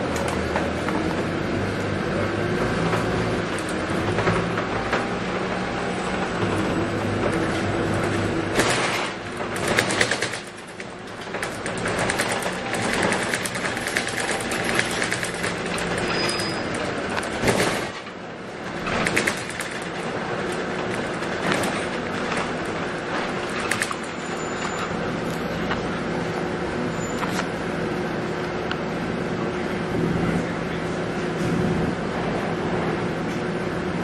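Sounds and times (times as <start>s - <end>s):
bus diesel engine running: 0.0s - 34.0s
interior rattles and clatter: 2.7s - 25.9s.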